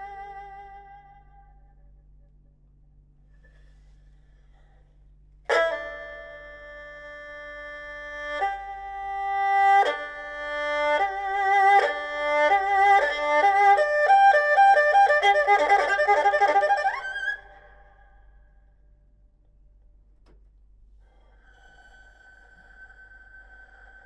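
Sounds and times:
erhu played with bow: 0.0 - 2.0, 5.5 - 18.2, 21.1 - 24.0.

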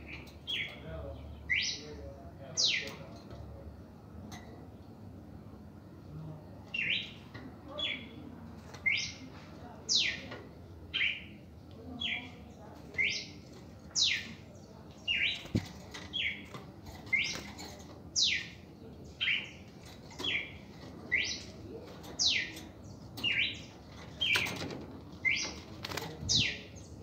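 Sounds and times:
wings fluttering: 24.4 - 26.4.

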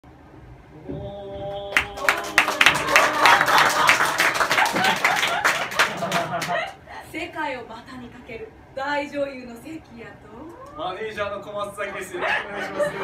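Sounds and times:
audience applauding: 1.5 - 6.8.

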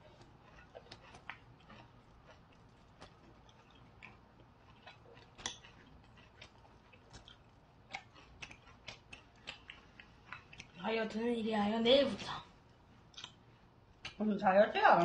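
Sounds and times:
chewing clicks: 0.0 - 10.8, 13.1 - 14.2.

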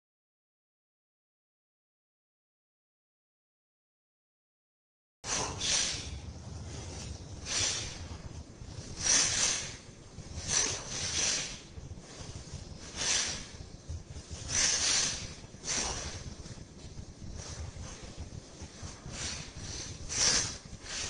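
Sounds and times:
sharp hissing exhalations: 5.3 - 16.6, 18.7 - 21.0
low steady rumble: 5.3 - 21.0.

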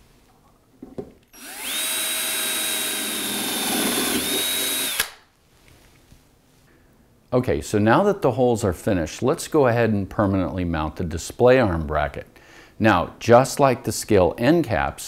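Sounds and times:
drill clicks: 1.3 - 5.2
drill motor high whine: 1.4 - 5.2.

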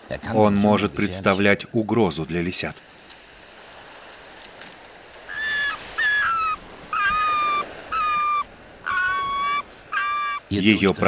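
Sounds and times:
fox high piercing screams: 5.3 - 10.5.

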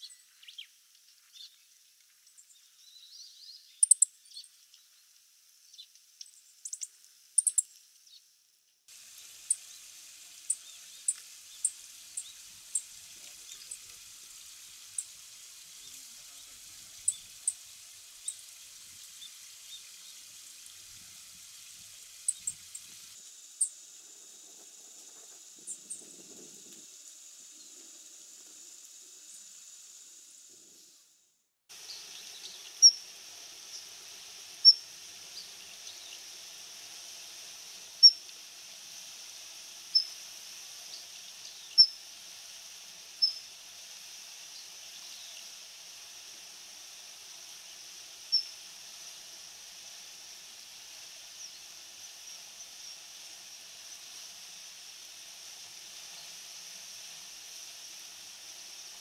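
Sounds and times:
thin high bird calls: 2.8 - 4.5, 6.6 - 7.7, 40.9 - 42.0, 43.2 - 43.5.

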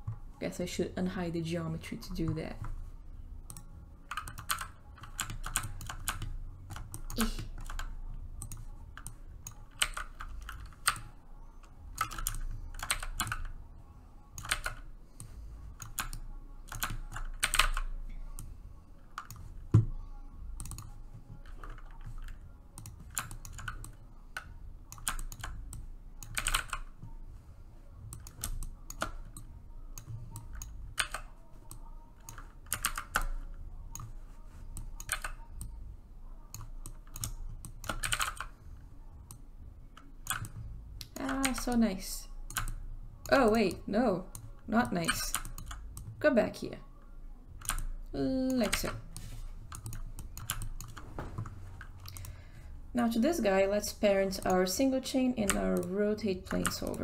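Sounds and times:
keyboard keys clicking: 3.5 - 13.6, 14.4 - 18.5, 20.6 - 27.2, 28.1 - 35.8, 36.5 - 38.6, 40.0 - 41.9, 48.5 - 52.4.

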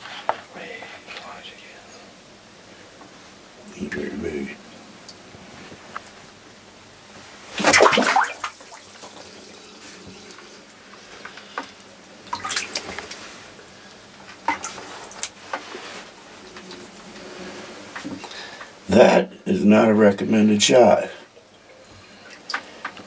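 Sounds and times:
spear splashing into water: 7.6 - 8.8.

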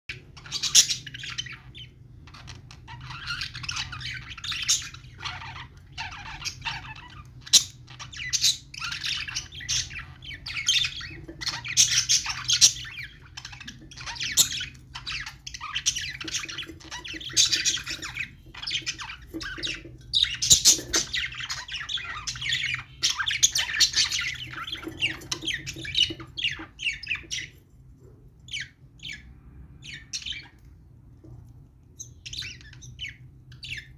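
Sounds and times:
budgerigars chattering: 0.1 - 27.6.

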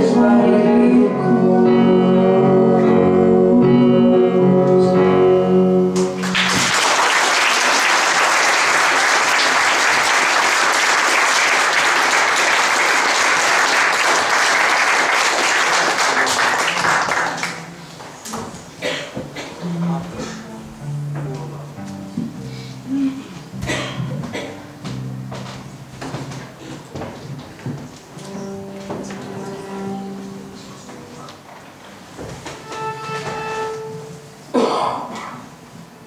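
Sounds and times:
audience applause: 6.2 - 17.7.

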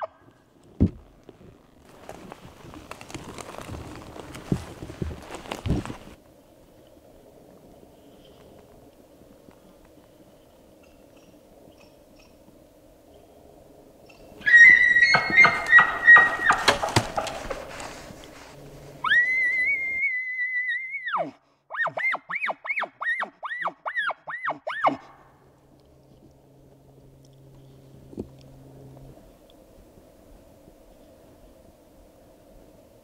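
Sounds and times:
elk bugling: 14.2 - 20.1, 21.0 - 30.0.

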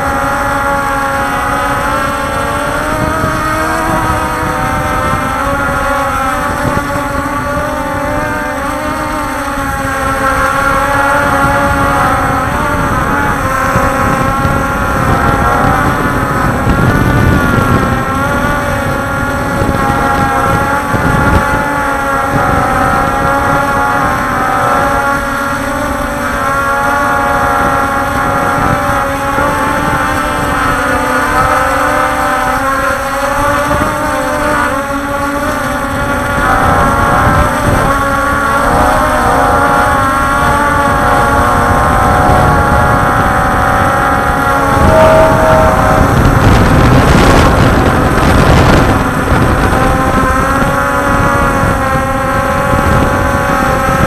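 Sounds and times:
drone motors whining: 0.0 - 54.0
wind rumbling on microphone: 0.0 - 54.0.

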